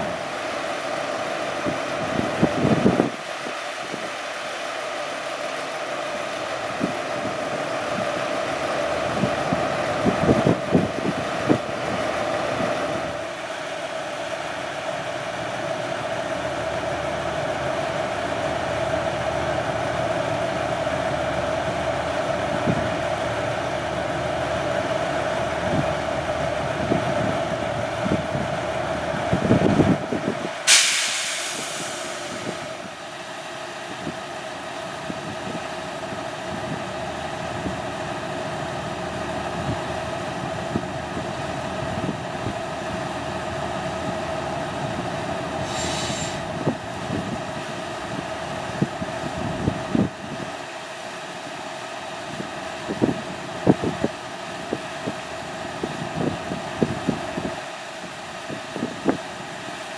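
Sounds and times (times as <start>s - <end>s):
diesel locomotive engine drone: 0.0s - 59.9s
sudden sharp hiss: 30.7s - 32.8s, 45.6s - 46.5s
short high squeak: 45.7s - 46.4s.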